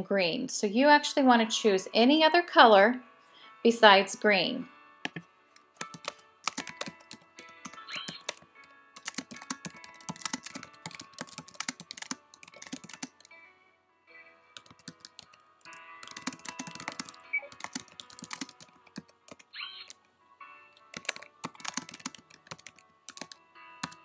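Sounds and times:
keyboard typing: 5.1s - 13.3s, 14.6s - 20.0s, 20.8s - 24.0s.

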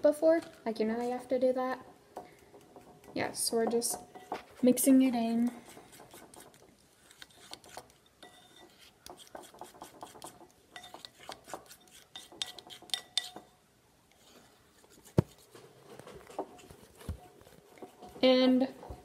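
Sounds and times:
utensil clinking on glass bowl: 8.0s - 8.7s, 10.7s - 13.5s.

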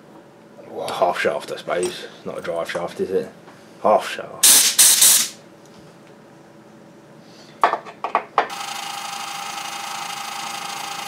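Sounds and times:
metal lathe whine: 8.5s - 11.0s.

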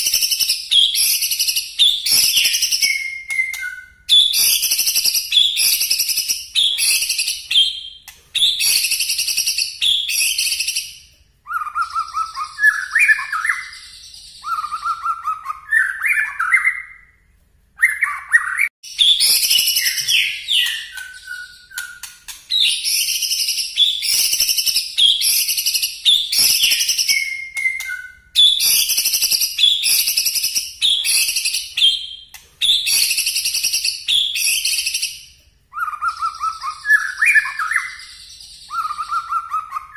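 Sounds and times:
bird singing sharp high notes: 17.8s - 30.3s.

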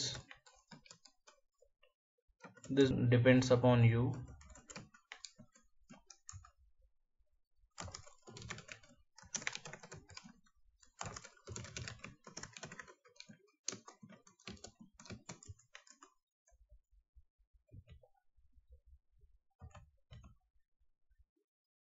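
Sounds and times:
typing on computer keyboard: 0.0s - 1.7s, 2.4s - 2.8s, 4.1s - 6.6s, 7.7s - 16.6s, 19.6s - 20.4s.

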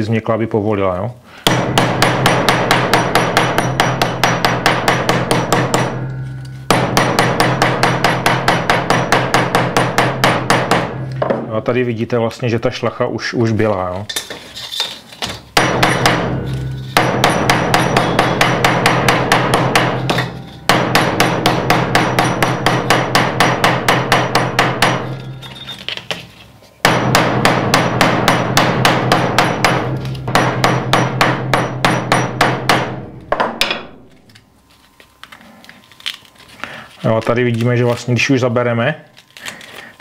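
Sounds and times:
hammer pounding on metal anvil: 1.4s - 11.5s, 15.6s - 26.2s, 26.8s - 34.0s.

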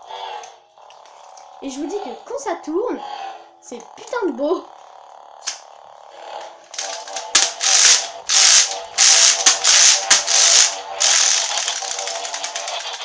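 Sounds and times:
toy electronic hum: 0.0s - 13.0s
toy rattling ratchet clicks: 5.4s - 5.7s, 6.4s - 13.0s.

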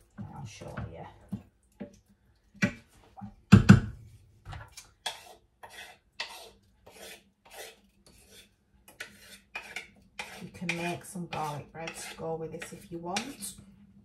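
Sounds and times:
spoon scraping metal pot: 4.6s - 13.6s.

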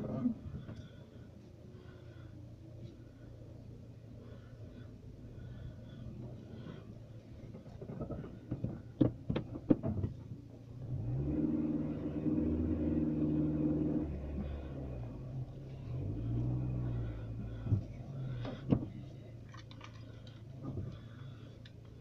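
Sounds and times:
car engine from inside cabin: 0.0s - 22.0s
sharp clicks and knocks: 7.5s - 10.4s.

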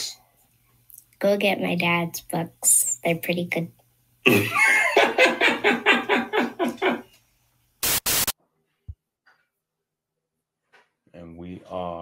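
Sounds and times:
person laughing: 4.3s - 7.1s
hissing static: 7.8s - 8.4s.

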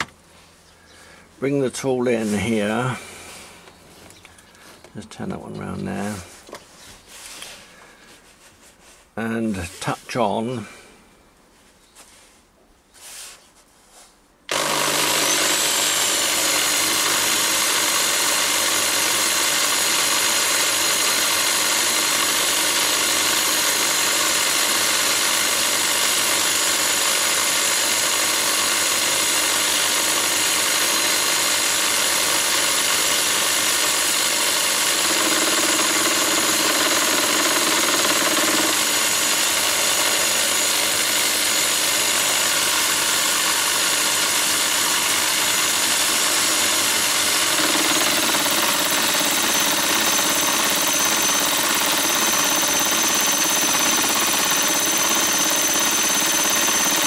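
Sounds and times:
electric drill whining: 0.0s - 0.2s, 14.5s - 57.0s.

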